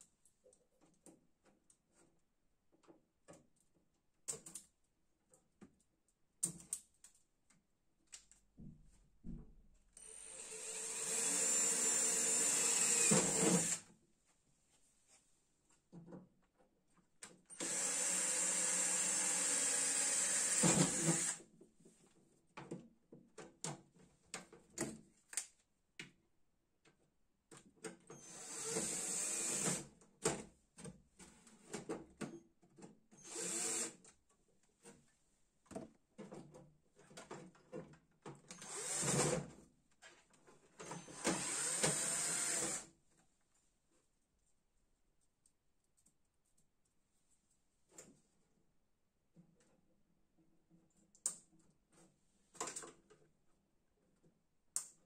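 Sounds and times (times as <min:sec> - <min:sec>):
cordless drill running: 0:10.0 - 0:13.8, 0:17.5 - 0:21.4, 0:28.2 - 0:29.8, 0:33.2 - 0:34.0, 0:38.6 - 0:39.3, 0:41.0 - 0:42.8.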